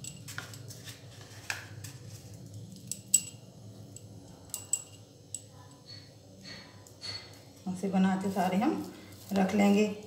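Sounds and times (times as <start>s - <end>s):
bangles clinking: 0.0s - 0.8s, 2.7s - 6.1s.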